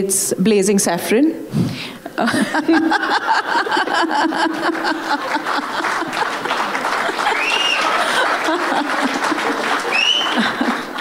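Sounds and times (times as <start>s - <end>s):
audience laughing: 2.2s - 11.0s
audience clapping: 3.1s - 11.0s.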